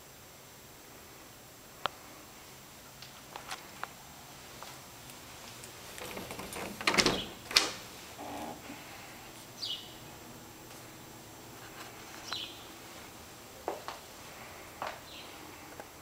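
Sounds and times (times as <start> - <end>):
door rattle: 5.9 - 8.4.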